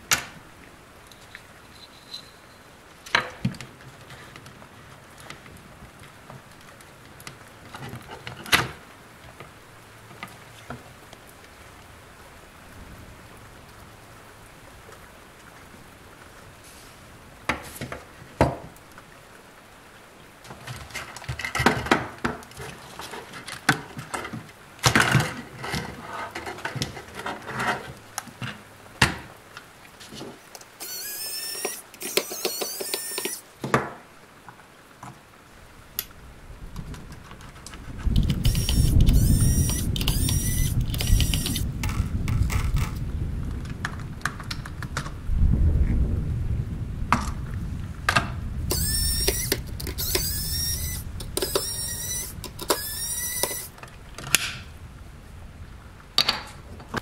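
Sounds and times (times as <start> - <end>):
short high-pitched squeak: 1.7 - 2.7, 30.8 - 33.4, 38.2 - 41.7, 48.7 - 53.8
plastic toy parts clicking: 30.8 - 33.4, 38.2 - 43.0, 48.7 - 53.7.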